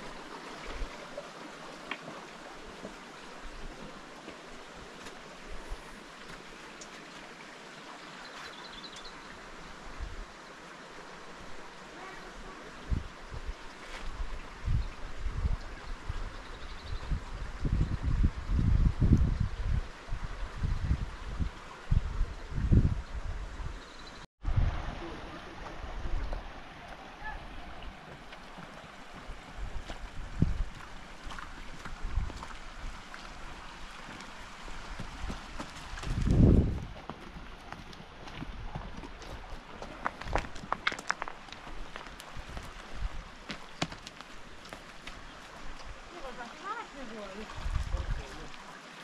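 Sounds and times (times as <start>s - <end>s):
river water rushing: 0.0s - 15.2s, 24.4s - 49.0s
wind buffeting microphone: 12.4s - 23.8s, 29.2s - 33.0s, 34.7s - 41.0s, 47.4s - 48.6s.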